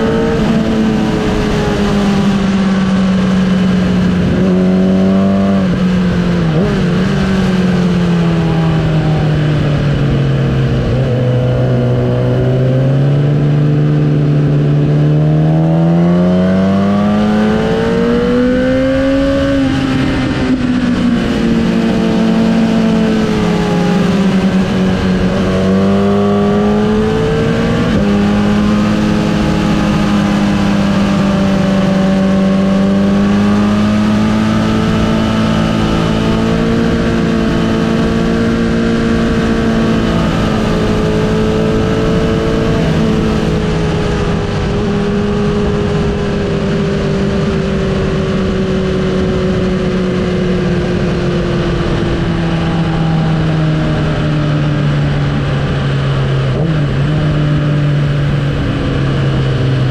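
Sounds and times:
motorcycle engine at low revs: 0.0 - 59.9.

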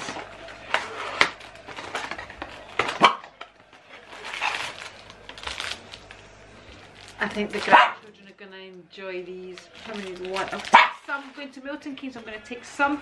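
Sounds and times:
packaging rustling: 0.0 - 8.2, 9.4 - 12.2.

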